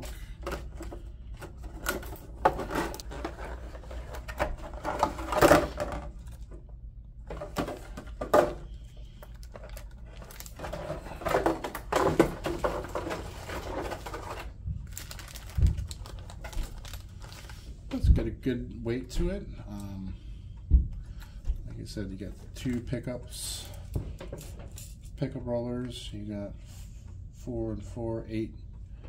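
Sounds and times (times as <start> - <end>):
plastic packaging crinkling: 9.1 - 17.7.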